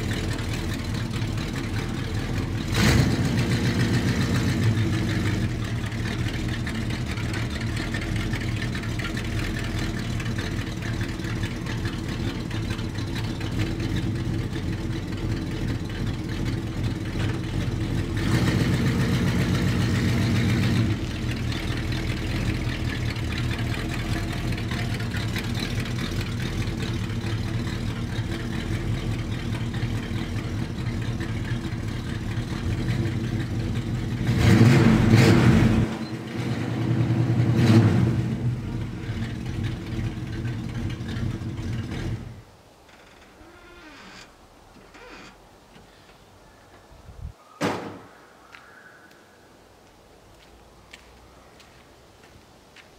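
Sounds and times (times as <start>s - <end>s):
truck engine idling: 0.0s - 42.5s
engine revving: 1.1s - 8.0s, 15.7s - 42.4s.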